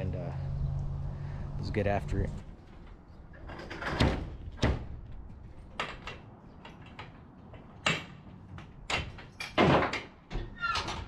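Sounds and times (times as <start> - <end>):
ramp door thumping on pavement: 2.5 - 6.3, 7.0 - 10.6.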